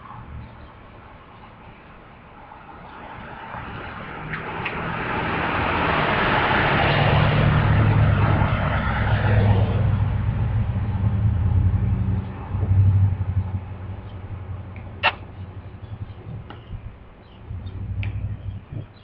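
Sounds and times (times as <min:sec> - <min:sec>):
road noise: 0:00.0 - 0:19.0
vehicle engine running: 0:07.1 - 0:19.0.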